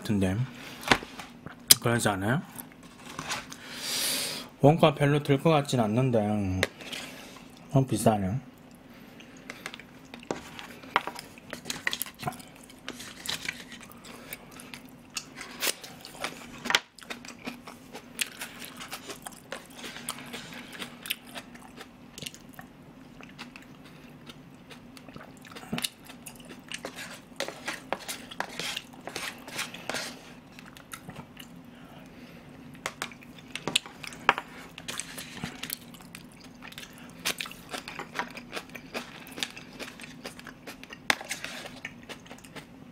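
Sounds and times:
spoon scraping plastic container: 0:26.8 - 0:30.2
wet chewing: 0:33.0 - 0:42.7.

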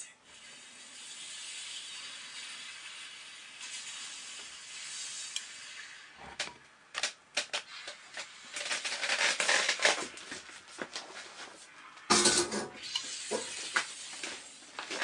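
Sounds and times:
steam iron hissing: 0:00.2 - 0:06.4, 0:12.8 - 0:15.0
dense crackling noise: 0:01.7 - 0:12.2.

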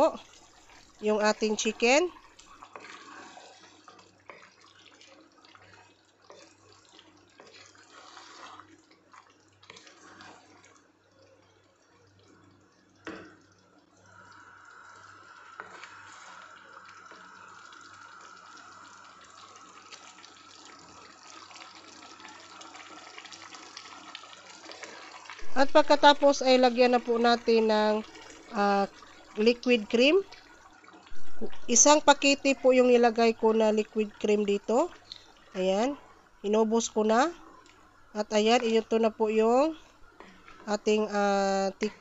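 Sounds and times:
wooden spoon stirring: 0:00.1 - 0:10.8, 0:15.5 - 0:17.4, 0:31.2 - 0:41.8
sauce simmering and bubbling: 0:00.1 - 0:42.0.

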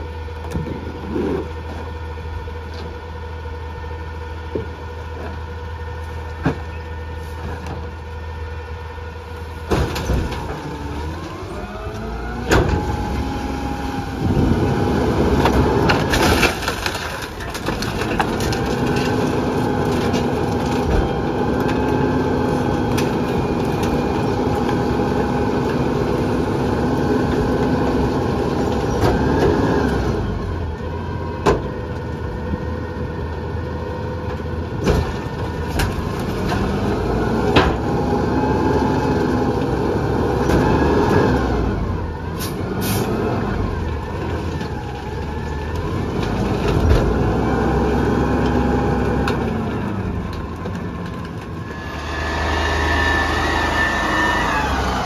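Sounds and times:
garbage truck engine revving: 0:06.9 - 0:55.0
trash being crushed bangs: 0:09.5 - 0:29.9, 0:34.4 - 0:38.7.

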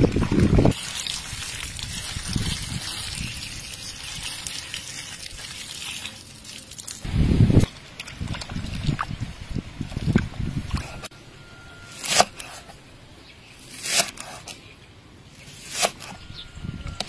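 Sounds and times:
water splashing and trickling: 0:00.0 - 0:11.1.

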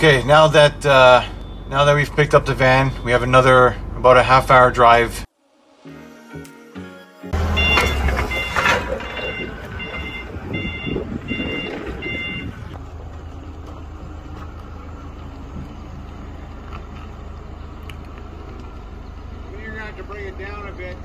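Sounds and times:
forklift engine running: 0:00.0 - 0:05.2, 0:07.3 - 0:21.0
high electronic beep: 0:01.2 - 0:03.5, 0:07.5 - 0:12.6.

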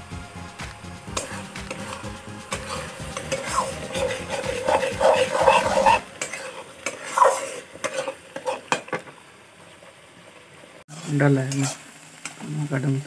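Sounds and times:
gravy sizzling: 0:00.0 - 0:13.0
spatula scraping a metal pan: 0:01.1 - 0:08.9.

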